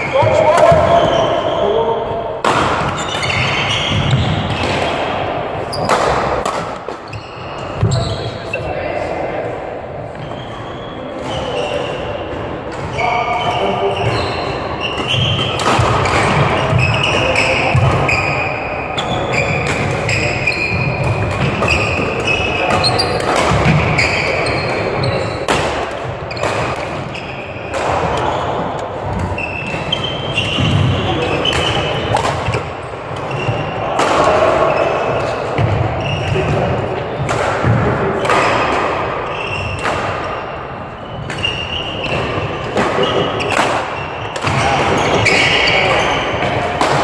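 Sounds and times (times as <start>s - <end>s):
shoes squeaking on floor: 0.0s - 2.2s, 2.8s - 5.0s, 5.6s - 8.8s, 10.1s - 34.0s, 34.6s - 37.2s, 39.2s - 46.7s
racket hitting shuttlecock: 2.4s - 7.1s, 14.8s - 18.2s, 19.3s - 40.4s, 41.2s - 47.0s.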